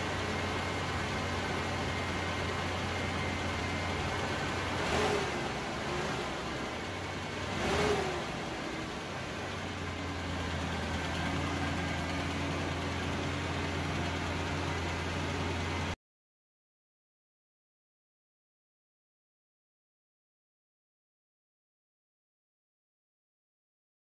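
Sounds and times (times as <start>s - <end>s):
engine idling and revving: 0.0s - 16.0s.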